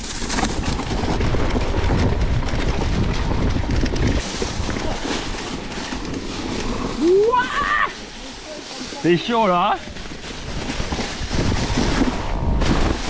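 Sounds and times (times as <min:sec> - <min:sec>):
bike clicks and knocks: 0:00.0 - 0:06.8
bike rattling over dry leaves: 0:00.0 - 0:13.0
wind buffeting microphone: 0:00.0 - 0:13.0.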